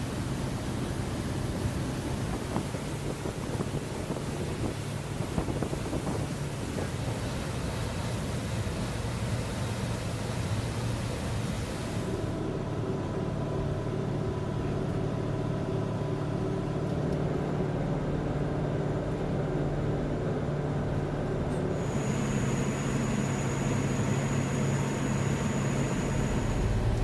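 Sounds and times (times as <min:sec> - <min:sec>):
rush of wind and water: 0:00.0 - 0:12.4, 0:21.8 - 0:27.0
boat engines droning: 0:00.0 - 0:27.0.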